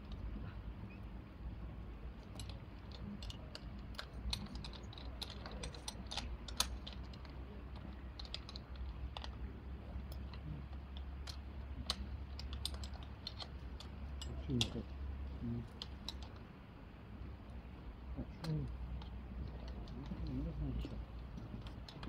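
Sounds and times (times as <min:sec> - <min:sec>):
low steady hum: 0:00.0 - 0:22.0
metal gear clicking and clinking: 0:02.2 - 0:16.4.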